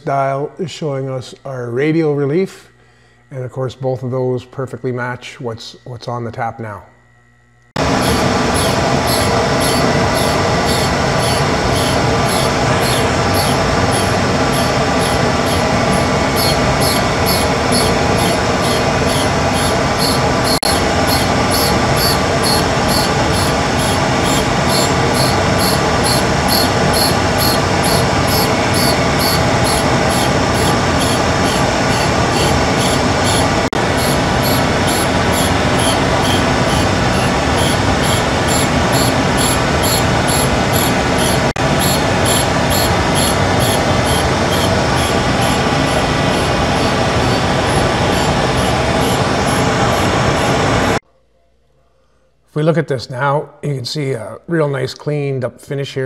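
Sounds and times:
grinder grinding metal: 0:07.8 - 0:51.0.

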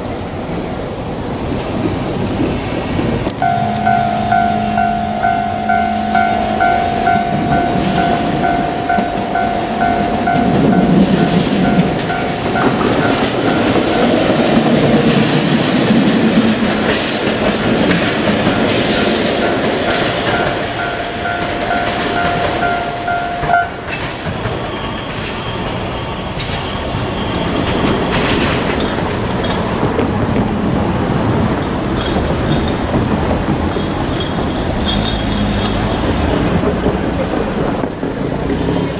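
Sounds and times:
train wheels clattering over rails: 0:00.0 - 0:38.9
level crossing alarm tone: 0:03.4 - 0:14.6, 0:18.4 - 0:23.9.

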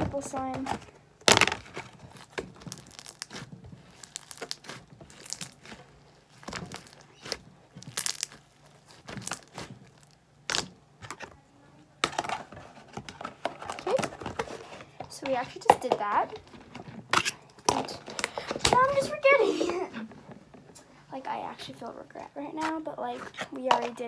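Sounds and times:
slime squishing and tearing: 0:01.2 - 0:11.3.

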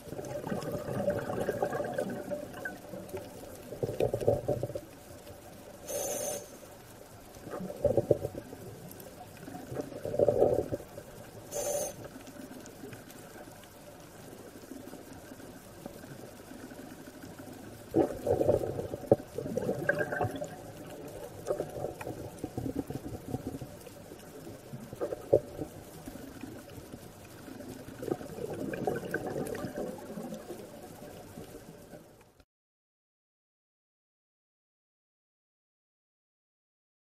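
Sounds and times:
underwater exhaled bubbles: 0:00.0 - 0:32.2
regulator inhalation hiss: 0:05.8 - 0:06.8, 0:11.5 - 0:12.2.

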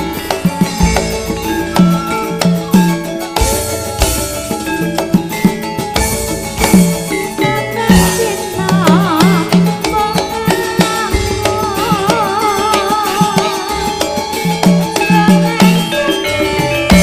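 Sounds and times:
band playing live: 0:00.0 - 0:17.0
drum strokes: 0:00.0 - 0:17.0
woman singing with vibrato: 0:07.4 - 0:17.0.

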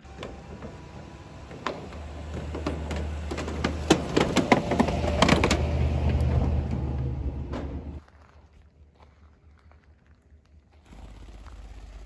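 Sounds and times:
low engine rumble: 0:00.0 - 0:08.0, 0:10.6 - 0:12.0
wooden boards clattering under tyres: 0:00.0 - 0:08.0.

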